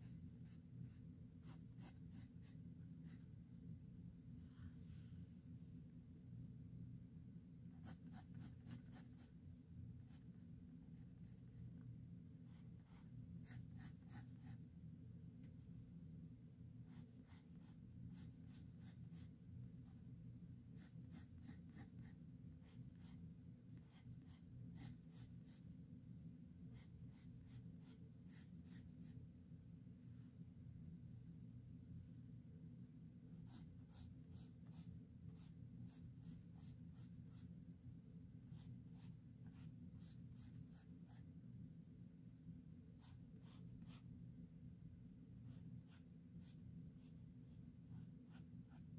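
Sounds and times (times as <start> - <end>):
pencil scratching on paper: 0.0 - 3.3, 7.7 - 9.3, 12.5 - 14.6, 16.9 - 19.3, 20.7 - 23.2, 23.8 - 25.6, 26.7 - 29.2, 33.4 - 37.5, 38.5 - 41.2, 43.0 - 44.1, 45.5 - 48.9
steady low hum: 0.0 - 48.9.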